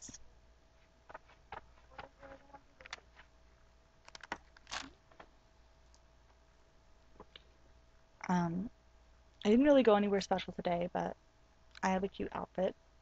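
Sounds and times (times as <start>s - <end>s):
faint steady hum: 0.0s - 13.0s
clicks and rustles of handling: 1.0s - 3.3s, 4.0s - 6.0s.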